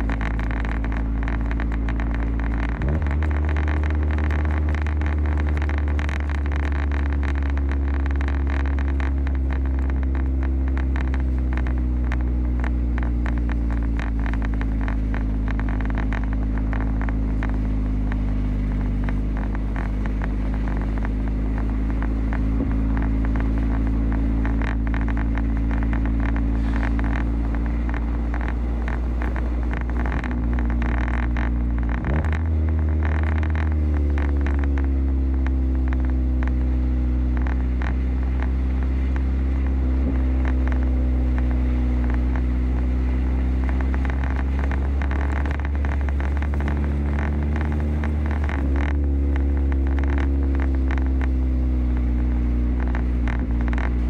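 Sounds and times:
car engine running: 0.0s - 54.0s
tyres crackling on packed snow: 0.0s - 54.0s.

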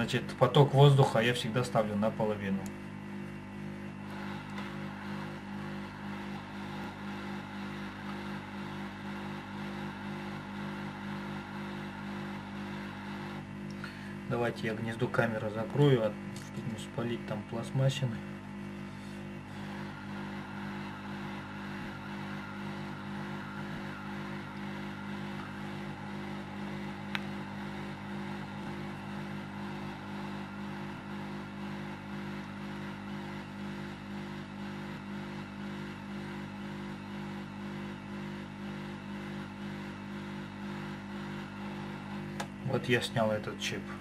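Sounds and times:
blower hum with air hiss: 0.0s - 44.0s.

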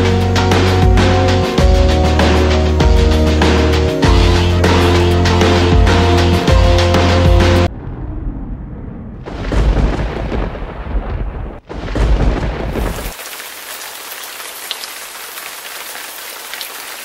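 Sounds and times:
thunder rumbling: 7.6s - 13.2s
heavy rain hissing: 12.8s - 17.0s.

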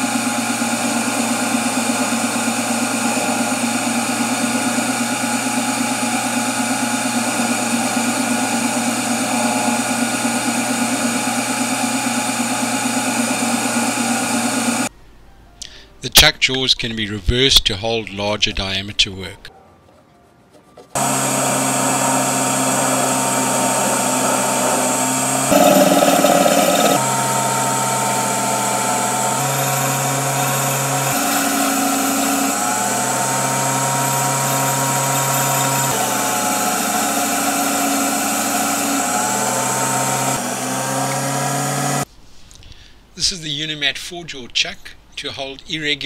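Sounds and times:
lathe motor humming: 0.0s - 14.9s, 21.0s - 42.1s
tool cutting brass: 21.0s - 42.0s.

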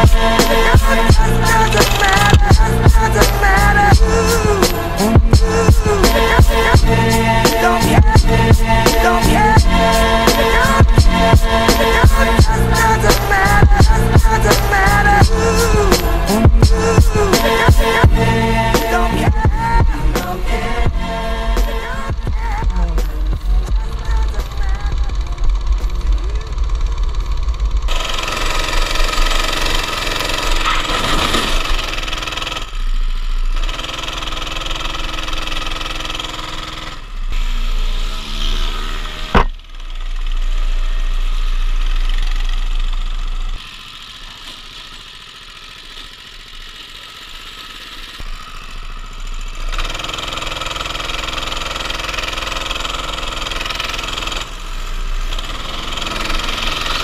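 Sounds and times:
go-kart engine running: 0.0s - 57.0s
sharp knock: 39.3s - 39.6s.

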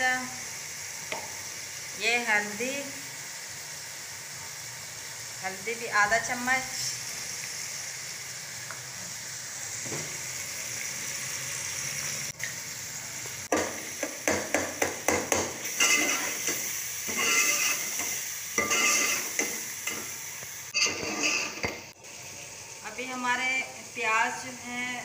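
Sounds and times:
spices sizzling in a pot: 0.0s - 25.0s
metal ladle scraping a pot: 15.7s - 20.1s, 20.7s - 21.8s.

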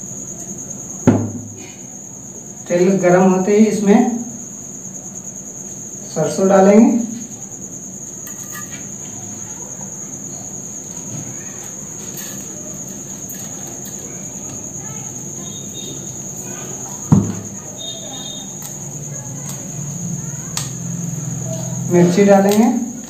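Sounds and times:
cricket trilling: 0.0s - 23.0s
sharp knock: 1.1s - 1.6s, 17.1s - 17.4s.

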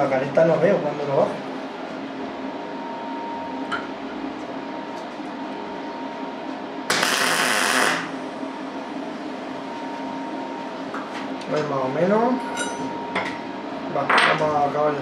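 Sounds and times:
machine hum: 0.0s - 15.0s
arc welding burst: 6.9s - 8.2s.

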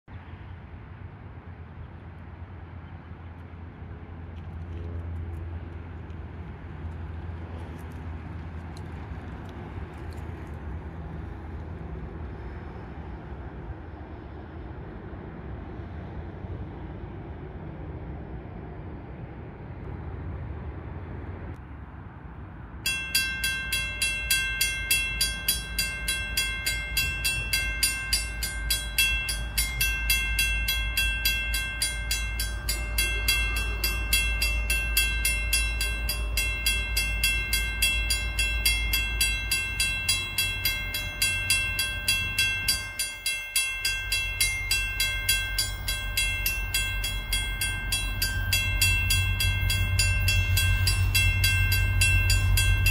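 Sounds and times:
steady low rumble: 0.2s - 52.9s
level crossing warning bell: 22.8s - 52.9s.

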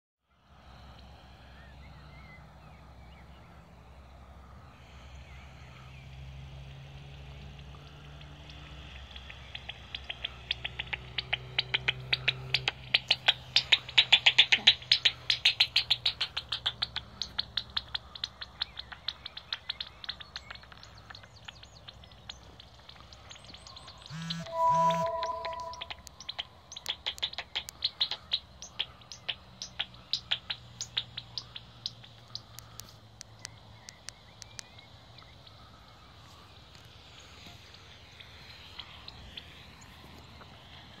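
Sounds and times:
bat detector dry clicks: 26.0s - 34.8s.

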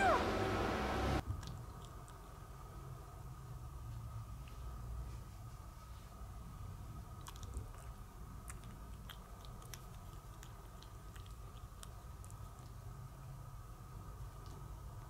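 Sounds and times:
kitten crunching kibble: 1.2s - 2.5s, 7.1s - 13.3s.

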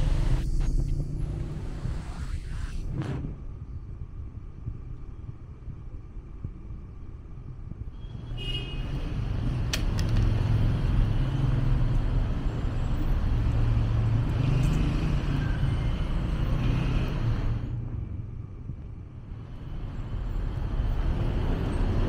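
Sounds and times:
vehicles passing close by: 8.2s - 18.6s, 19.2s - 22.0s.

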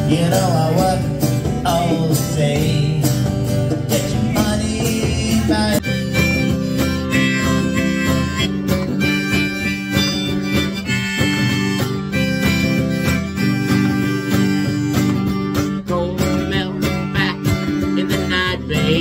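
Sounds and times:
acoustic guitar: 0.0s - 19.0s
hand drum: 0.0s - 19.0s
harmonica long notes: 5.5s - 15.9s.

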